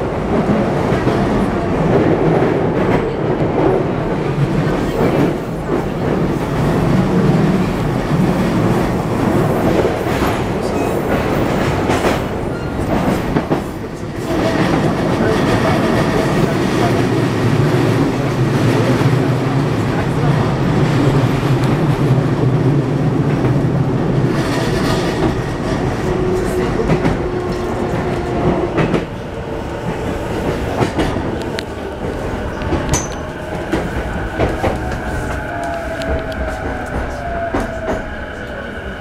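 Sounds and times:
train wheels rumbling on rails: 0:00.0 - 0:39.0
rail clicks: 0:00.3 - 0:39.0.

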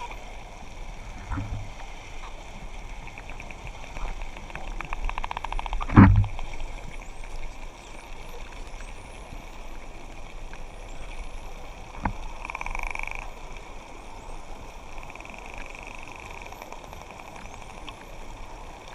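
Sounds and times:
dolphin buzzing pulsed call: 0:12.4 - 0:13.3.

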